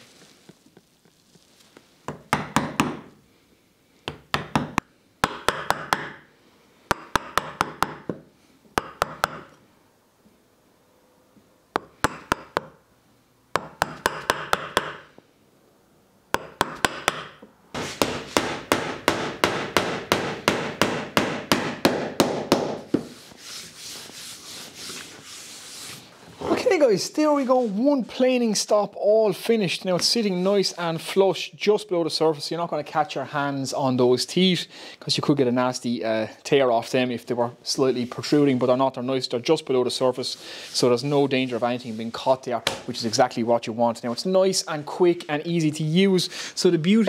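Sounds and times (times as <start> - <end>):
mallet striking chisel into wood: 2.1 - 3.1, 4.1 - 6.2, 6.9 - 9.6, 11.8 - 12.8, 13.6 - 15.1, 16.3 - 23.1
fast even hammer taps: 4.1 - 6.2, 6.9 - 8.2, 8.8 - 9.6, 11.8 - 12.8, 13.6 - 15.1, 16.4 - 17.4.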